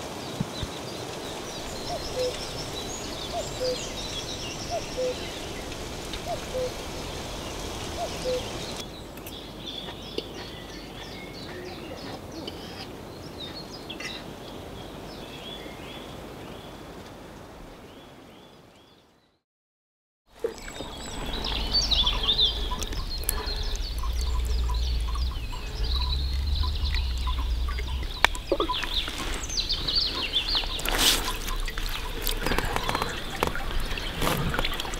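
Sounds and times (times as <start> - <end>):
birds chirping and singing: 1.1 - 14.3, 20.4 - 34.9
low rumble: 20.5 - 34.9.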